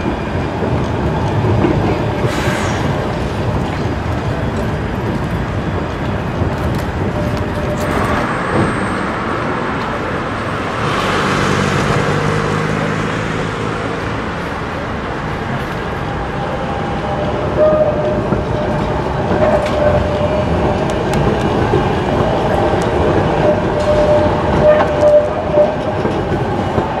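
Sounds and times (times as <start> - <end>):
tram rolling: 0.0 - 27.0
cars driving past: 7.9 - 15.0.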